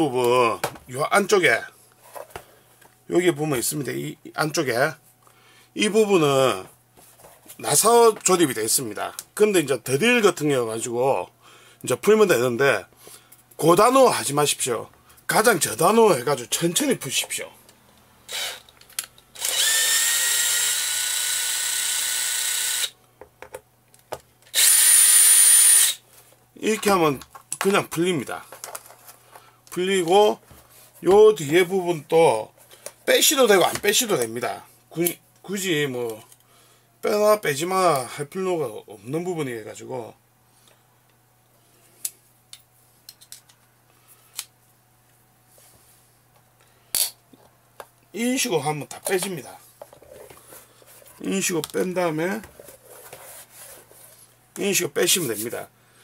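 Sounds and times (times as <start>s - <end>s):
cordless drill motor whine: 18.3s - 18.6s, 19.4s - 23.0s, 24.5s - 26.0s.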